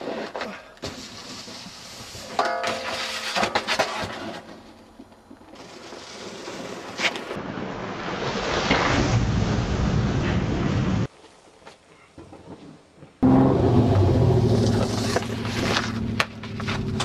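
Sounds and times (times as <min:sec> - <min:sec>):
snowboards scraping over snow: 0:00.0 - 0:04.7, 0:05.4 - 0:11.1.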